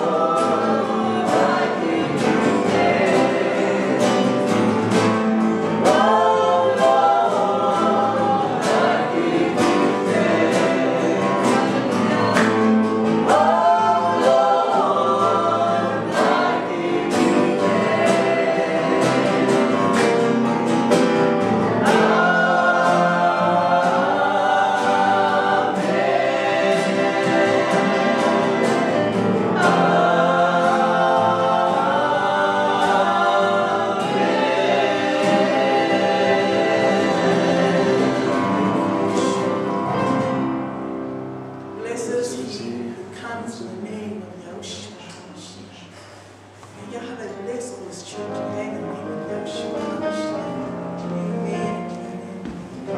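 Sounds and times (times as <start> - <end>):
voices singing together: 0.0 - 41.2
strummed guitar: 0.0 - 42.7.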